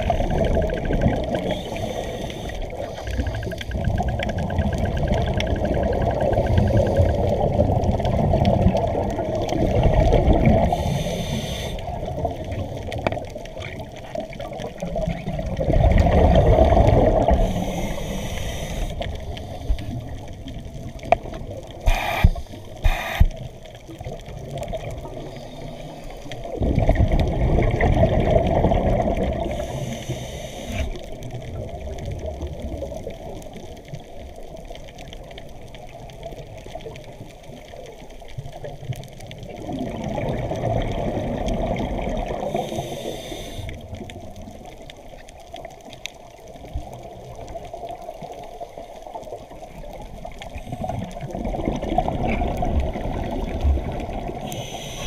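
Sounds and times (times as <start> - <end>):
underwater breath bubbles: 0.0 - 12.8, 14.6 - 20.4, 21.6 - 23.5, 24.6 - 31.8, 39.5 - 44.2, 50.2 - 55.0.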